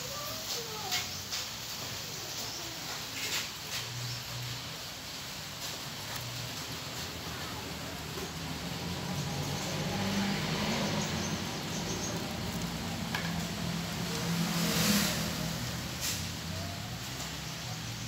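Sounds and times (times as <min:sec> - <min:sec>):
hiss: 0:00.0 - 0:12.8, 0:13.6 - 0:18.0
engine running low: 0:04.5 - 0:18.0.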